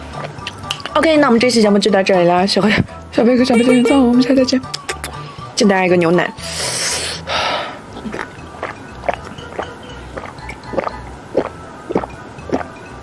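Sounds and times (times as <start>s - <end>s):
breathy rush: 6.4s - 7.9s
person swallowing: 7.9s - 12.8s.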